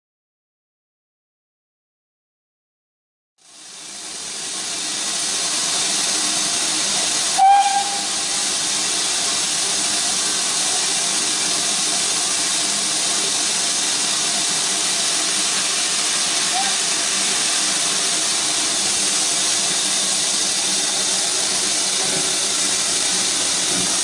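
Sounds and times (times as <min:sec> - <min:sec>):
steam locomotive hissing steam: 0:03.4 - 0:24.0
short shrill whistle note: 0:07.4 - 0:08.2.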